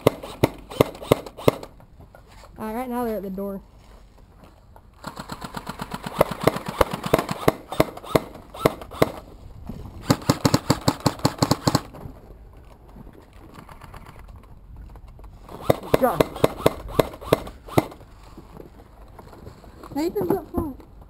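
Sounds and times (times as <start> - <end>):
airsoft guns firing automatic: 0.0 - 1.7, 5.0 - 9.2, 10.0 - 11.9, 15.5 - 18.0.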